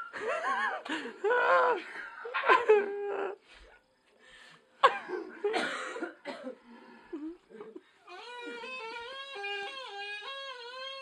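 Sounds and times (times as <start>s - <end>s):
shrill squealing voices: 8.0s - 11.0s.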